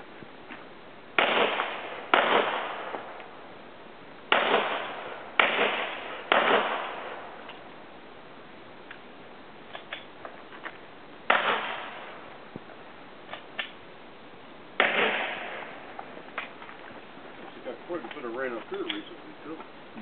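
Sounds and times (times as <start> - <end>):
pistol shots ringing: 4.3 - 7.2, 11.3 - 12.2, 14.8 - 15.8.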